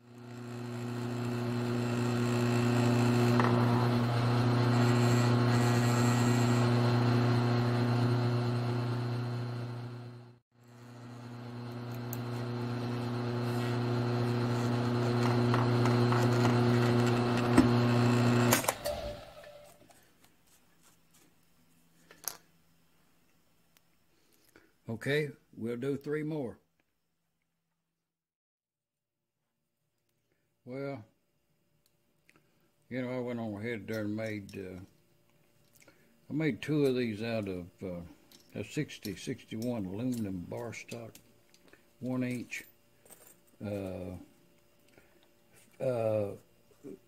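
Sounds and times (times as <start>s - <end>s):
drill motor running: 0.0s - 19.8s.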